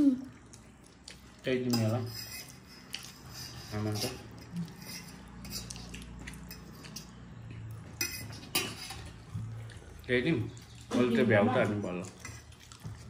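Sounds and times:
cutlery clinking on plates: 0:01.7 - 0:09.2.

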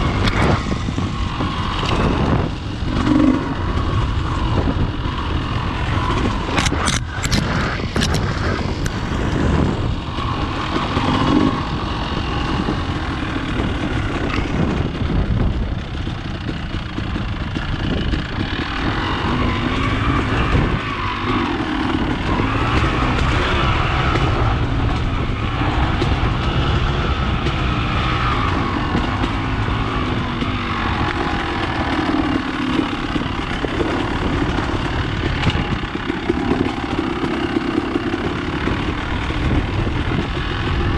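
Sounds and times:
dirt bike engine revving: 0:00.0 - 0:40.9
sharp clicks: 0:06.2 - 0:09.0.

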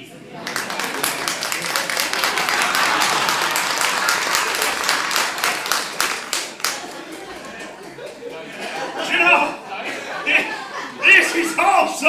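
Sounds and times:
audience applauding: 0:00.4 - 0:09.0.

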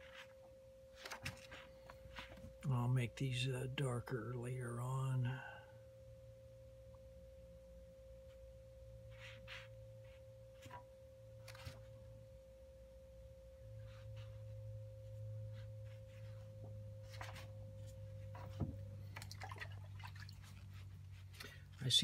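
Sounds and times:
faint electrical whine: 0:00.0 - 0:22.0
brush strokes on paper: 0:09.1 - 0:10.7.

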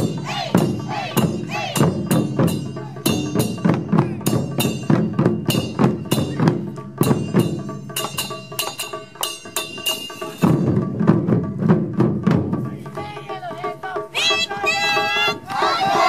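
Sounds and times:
drum ensemble strikes: 0:00.0 - 0:16.0
small hand cymbals clashing: 0:01.2 - 0:10.8.

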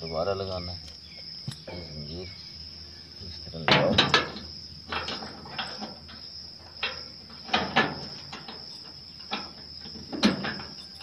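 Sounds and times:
crickets chirping: 0:00.0 - 0:11.0
chain clanking against metal frame: 0:03.5 - 0:11.0.

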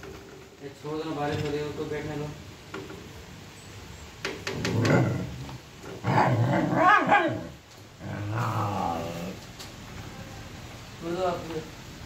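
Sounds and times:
dog growling and barking: 0:04.5 - 0:09.4.

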